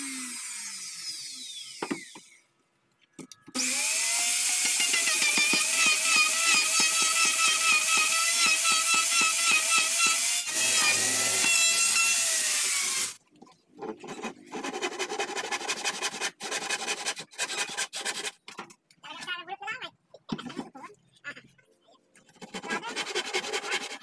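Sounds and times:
electric router cutting wood: 0.0 - 2.4, 3.6 - 13.2.

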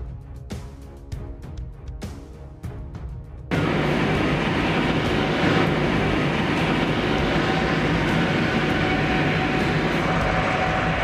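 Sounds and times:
faint steady whine: 3.5 - 11.0
heavy vehicle engine humming: 3.5 - 11.0.

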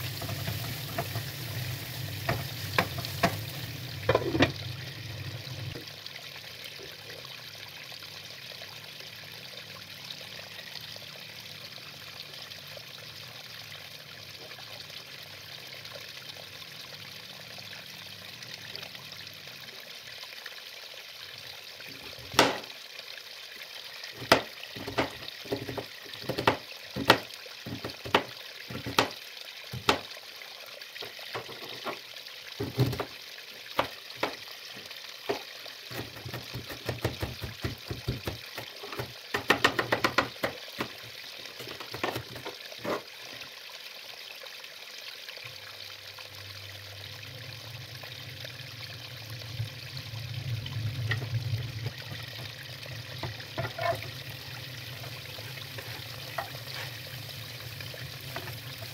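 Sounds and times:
knife chopping on cutting board: 35.9 - 38.4.

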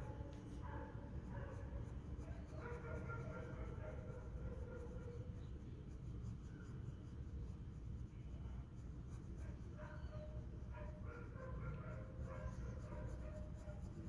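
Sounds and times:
low steady hum: 0.0 - 14.0
pencil shading on paper: 1.6 - 10.4, 12.2 - 14.0.

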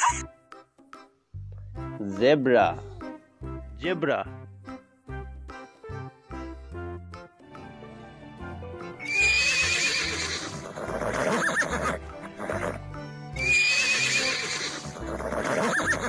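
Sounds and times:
horse neighing: 0.0 - 0.2, 9.0 - 16.0
background music: 0.0 - 16.0.

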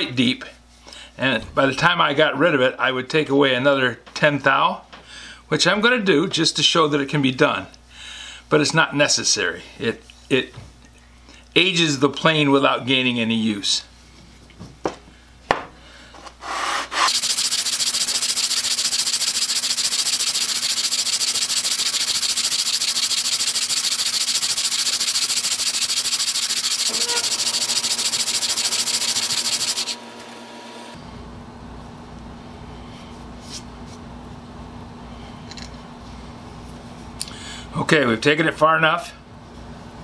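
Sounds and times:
wood scraping on sandpaper: 16.4 - 30.0.

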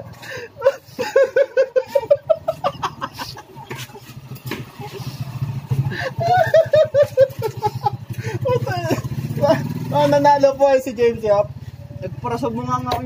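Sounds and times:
people laughing: 0.0 - 9.8.

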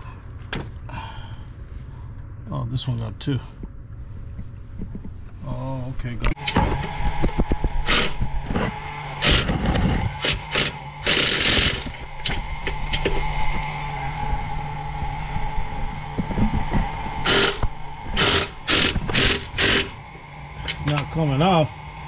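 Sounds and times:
impact driver running: 6.4 - 14.0, 16.1 - 21.3.

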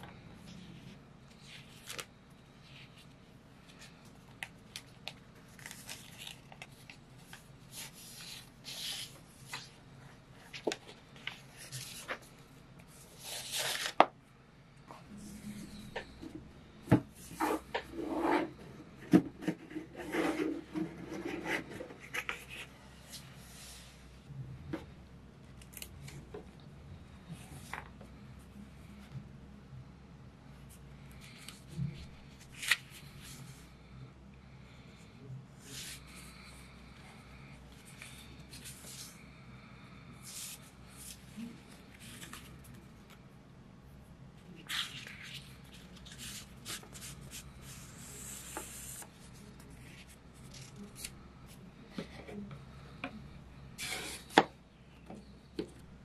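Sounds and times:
paper pages rustling: 2.8 - 9.8, 32.4 - 33.3, 44.6 - 51.1.

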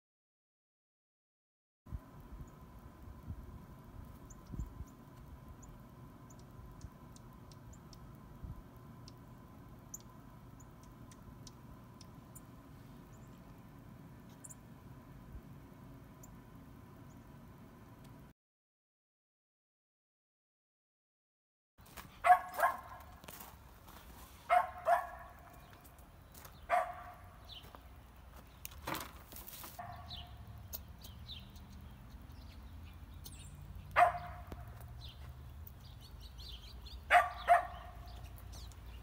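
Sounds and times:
low outdoor rumble: 1.9 - 18.3, 21.8 - 39.0
birds chirping faintly: 2.0 - 18.3, 21.8 - 39.0
dog barking: 22.2 - 23.2, 24.5 - 25.6, 26.7 - 27.3, 29.8 - 30.3, 34.0 - 34.6, 37.1 - 38.1.

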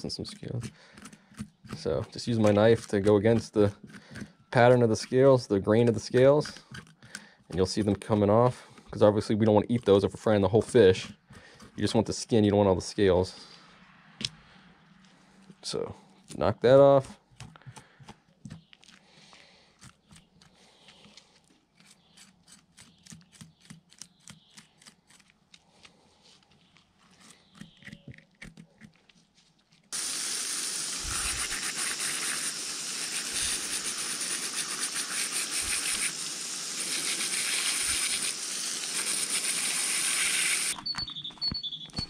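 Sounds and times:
knife scraping fish scales: 0.0 - 8.0, 31.0 - 40.8
hose spraying water: 29.9 - 40.8.

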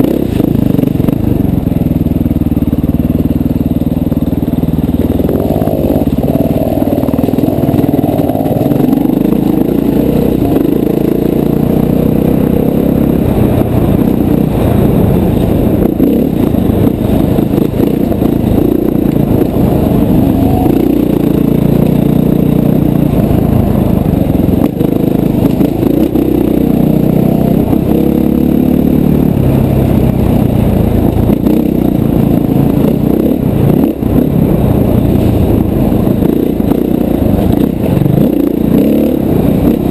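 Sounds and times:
dirt bike engine revving: 0.0 - 39.9
clatter from the trail: 24.3 - 28.8, 30.5 - 39.9.

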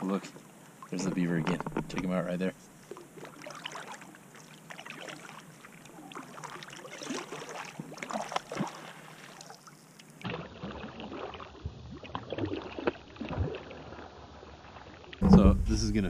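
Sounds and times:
kayak paddle splashing water: 2.9 - 15.1.

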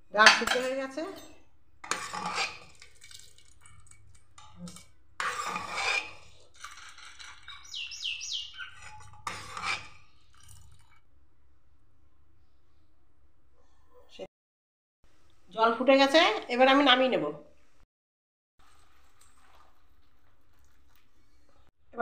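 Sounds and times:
ladle scraping metal pot: 0.2 - 11.0.

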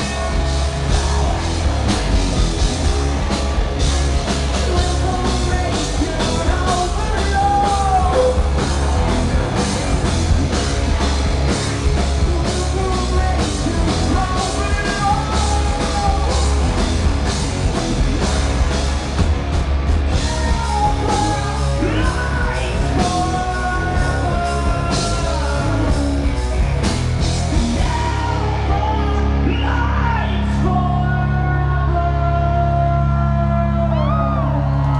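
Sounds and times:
live rock band playing: 0.0 - 34.9
man singing: 4.5 - 11.1, 12.0 - 16.8, 20.1 - 26.6, 27.4 - 34.9.

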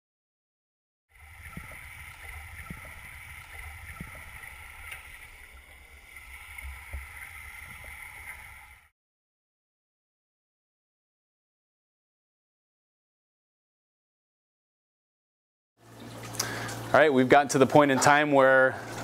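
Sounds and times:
underwater flowing water rumble: 1.1 - 8.9.

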